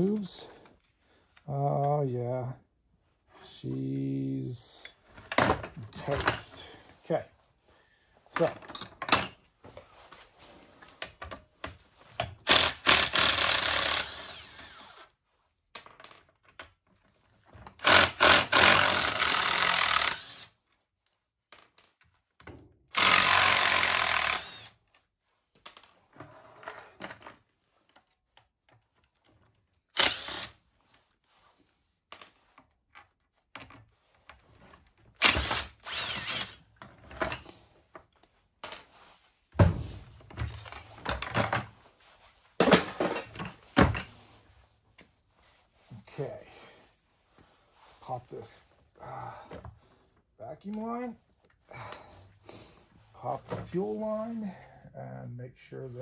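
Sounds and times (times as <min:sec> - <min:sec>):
cordless drill spinning screws: 0:12.4 - 0:15.2, 0:17.8 - 0:20.8, 0:22.9 - 0:25.1, 0:29.9 - 0:30.6, 0:35.2 - 0:36.8.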